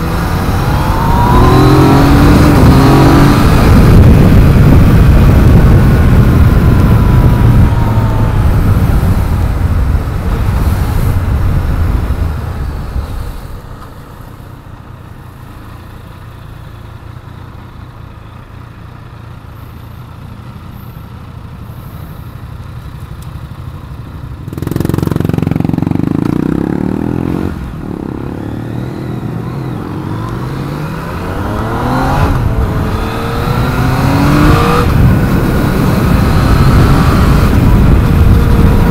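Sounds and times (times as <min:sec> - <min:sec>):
wind noise: 0:00.0 - 0:14.1, 0:28.8 - 0:38.9
motorcycle engine: 0:00.0 - 0:38.9.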